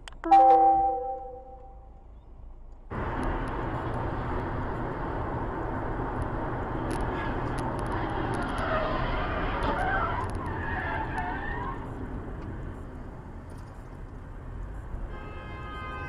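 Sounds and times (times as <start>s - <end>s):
car road and wind noise: 1.5s - 16.0s.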